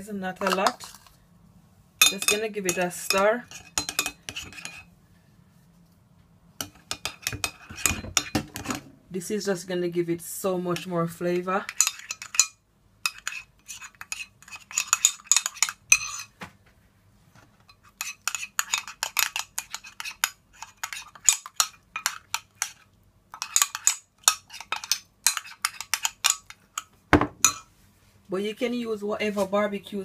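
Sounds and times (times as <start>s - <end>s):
metal spoon scraping ceramic bowl: 0.4s - 1.1s, 2.0s - 4.9s, 6.6s - 8.8s, 11.6s - 16.3s, 17.7s - 27.7s.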